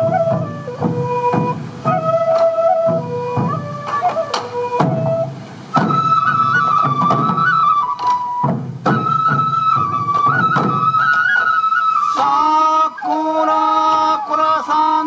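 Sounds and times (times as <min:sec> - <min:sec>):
drum beats: 0:00.0 - 0:12.5
bamboo flute melody: 0:00.0 - 0:15.0.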